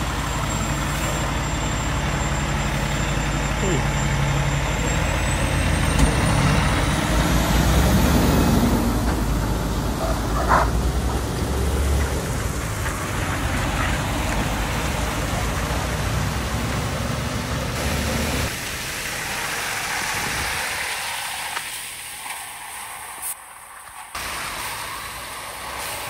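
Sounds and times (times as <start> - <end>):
diesel engine rumble: 0.0 - 26.0
tyre hiss on wet road: 12.6 - 26.0.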